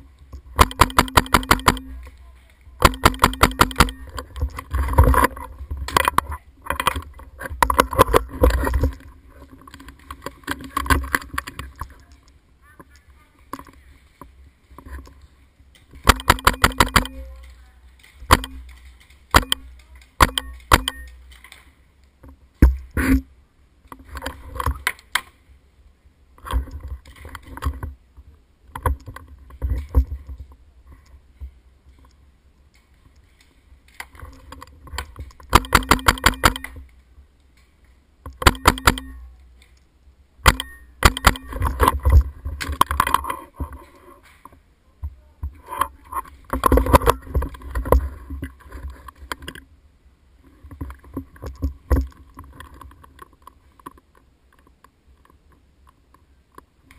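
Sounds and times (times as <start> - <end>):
paintball markers firing: 0.6 - 2.2, 2.8 - 4.2, 16.0 - 21.7, 35.5 - 36.9, 38.4 - 39.2.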